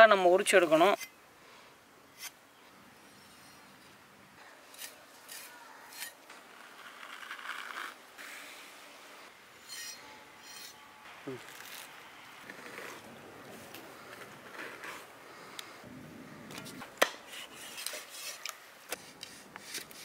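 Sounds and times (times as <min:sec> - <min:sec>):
skin rubbing and scraping: 0:04.8 - 0:08.6.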